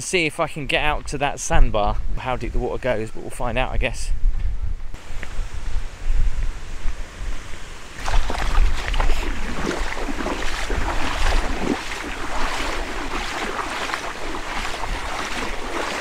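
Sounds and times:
wind rumbling on microphone: 0.8s - 16.0s
feet splashing through water: 8.0s - 16.0s.

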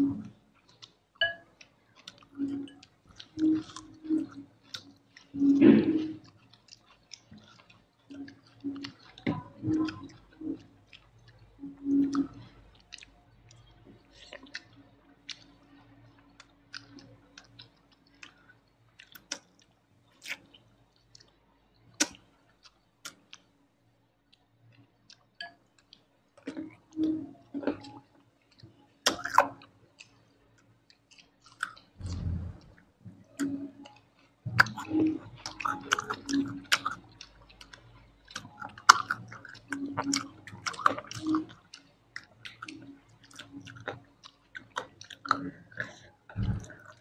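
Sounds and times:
person chewing food: 0.0s - 47.0s
mouth clicks: 22.0s - 22.2s, 31.1s - 47.0s.

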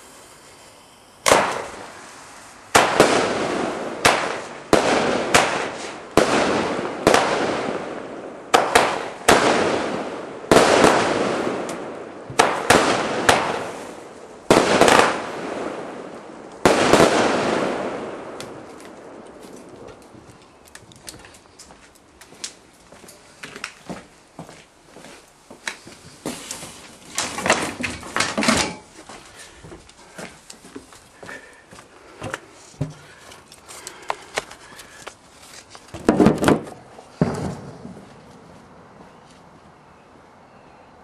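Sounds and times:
firework bangs: 0.0s - 20.2s, 35.9s - 38.3s.

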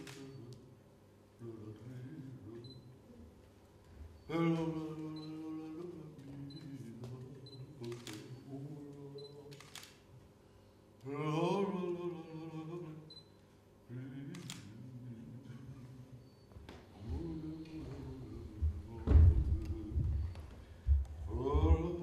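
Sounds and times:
man singing wordless notes: 0.0s - 3.2s, 4.2s - 9.7s, 11.0s - 22.0s
sharp clicks: 9.5s - 10.0s, 14.3s - 14.7s.

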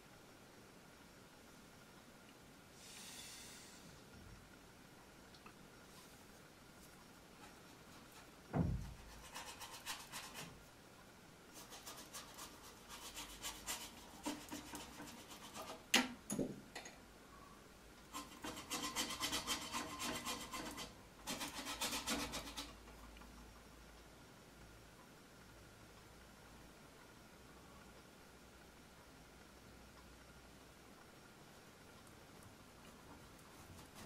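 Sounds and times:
low thump: 8.5s - 9.0s
paintbrush scrubbing on canvas: 11.5s - 15.8s.

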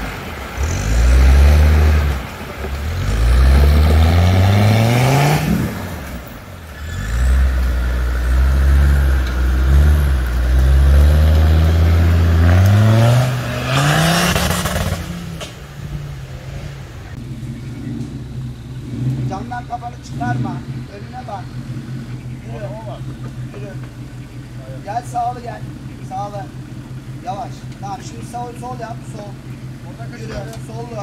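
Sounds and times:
engine revving hard: 0.0s - 15.5s, 16.4s - 23.2s.

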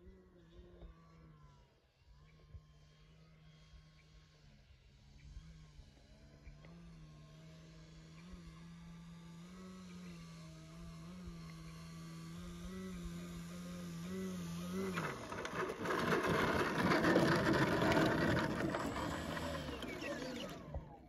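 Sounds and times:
electric propeller plane humming: 0.0s - 21.0s
plane rolling across grass: 14.3s - 21.0s.

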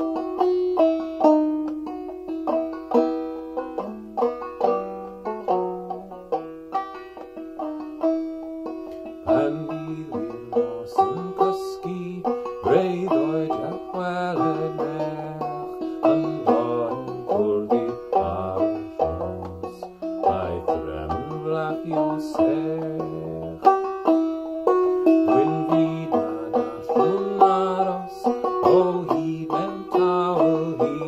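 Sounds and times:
banjo plucked notes: 0.0s - 31.0s
man singing folk song: 8.7s - 31.0s.

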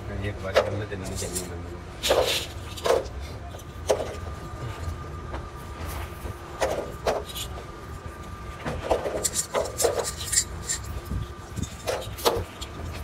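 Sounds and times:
faint steady whine: 0.0s - 13.0s
scraping on metal caps: 8.8s - 13.0s.

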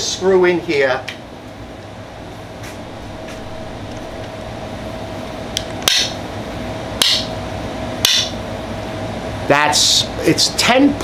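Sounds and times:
steady hum: 0.0s - 11.0s.

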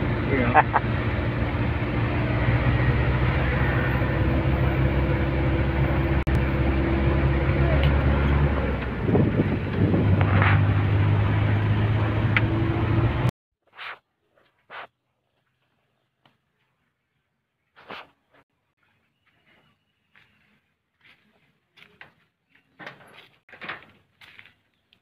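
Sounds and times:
van engine and road noise: 0.0s - 13.3s.

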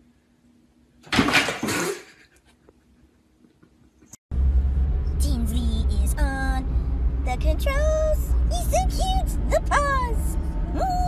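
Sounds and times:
car engine rumble: 4.3s - 11.0s.

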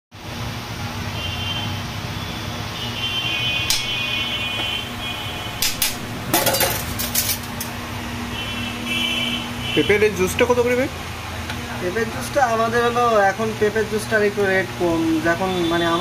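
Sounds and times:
steady background hum: 0.2s - 16.0s
kitchen utensils clinking: 5.6s - 7.8s.

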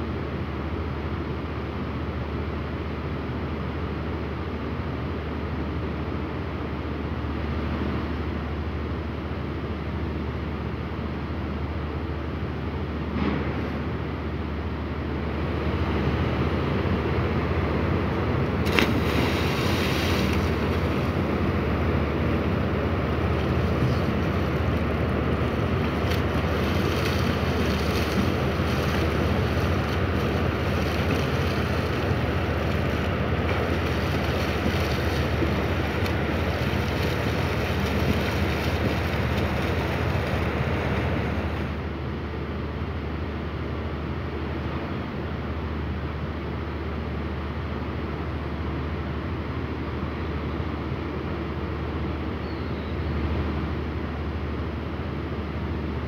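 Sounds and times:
ship engine rumble: 3.3s - 56.0s
churning rushing water: 15.8s - 42.0s.

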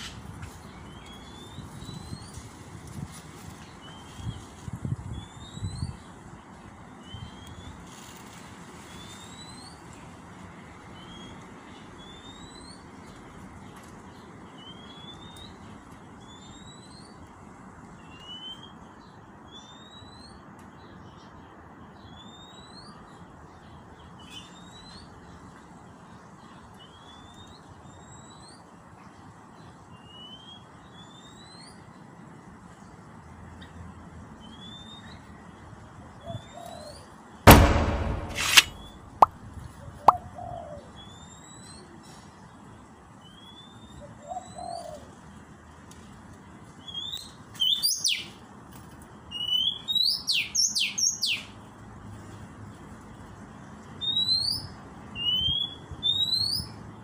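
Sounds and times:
sudden loud noise: 37.5s - 39.1s.

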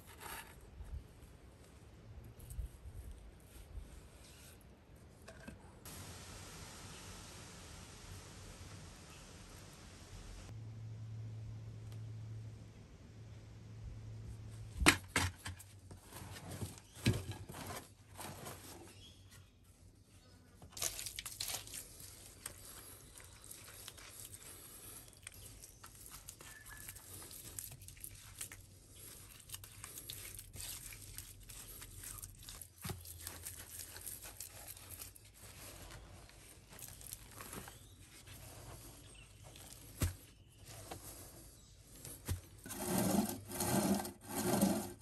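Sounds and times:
hands scraping wet clay and soil: 20.6s - 45.0s.

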